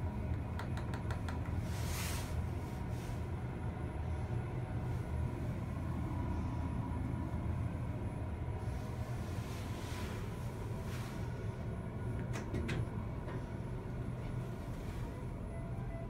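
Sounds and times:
elevator rumble and hum: 0.0s - 16.0s
faint elevator clicks: 12.1s - 13.5s.

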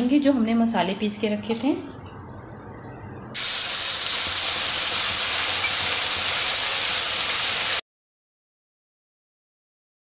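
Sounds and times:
paste sizzling in hot oil: 3.4s - 7.8s.

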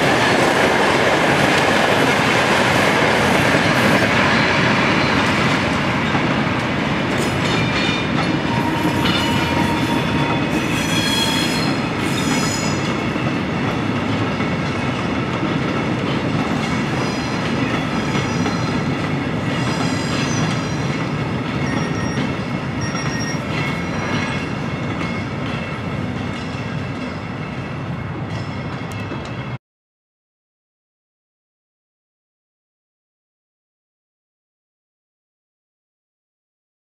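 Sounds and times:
freight train wheel and rail noise: 0.0s - 29.6s
metallic wheel squeals: 8.5s - 12.8s, 21.6s - 24.5s.

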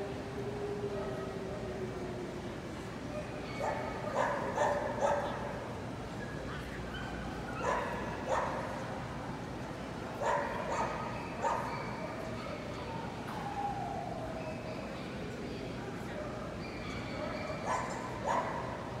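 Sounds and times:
steady background hum: 0.0s - 19.0s
dog barking: 3.5s - 5.4s, 7.6s - 8.6s, 10.2s - 12.0s, 17.4s - 18.7s.

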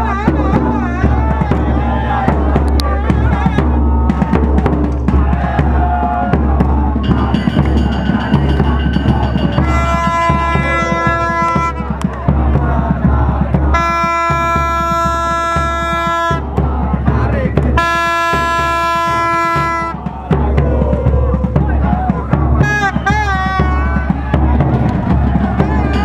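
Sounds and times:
plastic trumpet horn blasts: 9.6s - 12.0s, 13.8s - 16.4s, 17.8s - 19.9s.

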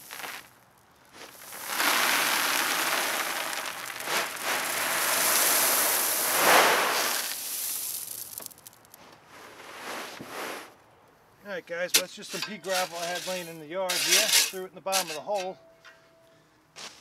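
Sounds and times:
gravel pouring from wheelbarrow: 0.0s - 0.5s, 1.1s - 10.7s, 12.2s - 15.2s.

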